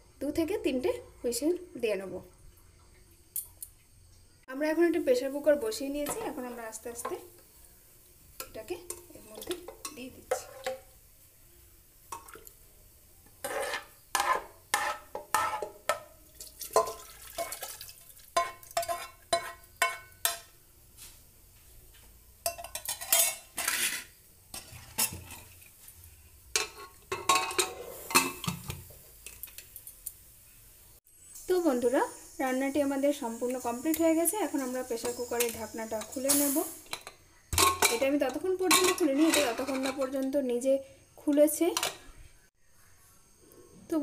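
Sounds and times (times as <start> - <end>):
metal spoon scraping a pot: 8.9 - 10.8, 13.4 - 16.0, 18.4 - 20.4, 22.5 - 25.7, 26.6 - 28.8, 35.0 - 40.2.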